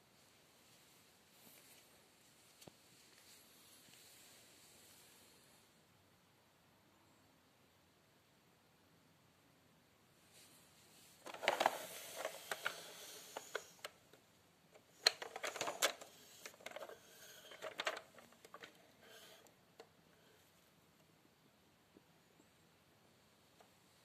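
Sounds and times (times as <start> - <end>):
plastic toy clicking and rattling: 11.2 - 14.0, 14.8 - 19.9.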